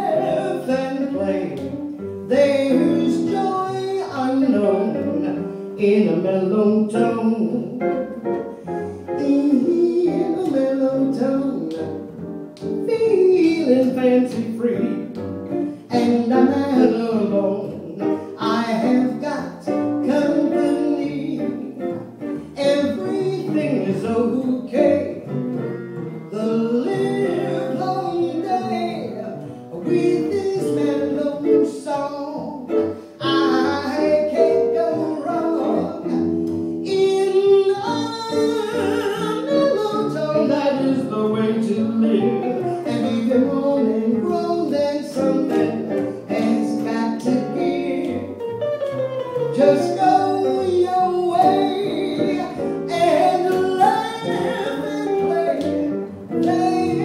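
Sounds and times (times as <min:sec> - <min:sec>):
jazz guitar: 0:00.0 - 0:57.0
plucked upright bass: 0:09.2 - 0:57.0
woman singing: 0:36.9 - 0:40.9.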